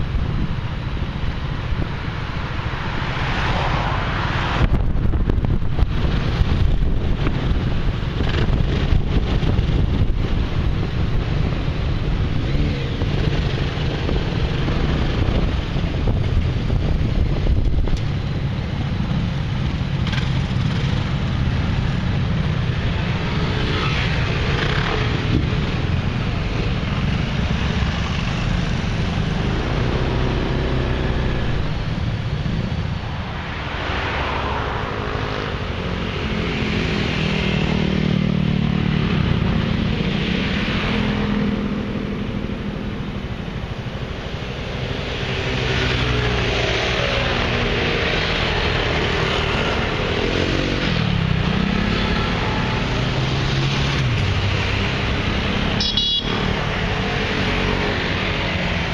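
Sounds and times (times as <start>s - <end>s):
wind buffeting microphone: 0.0s - 23.4s
scooter engines running: 6.2s - 32.9s.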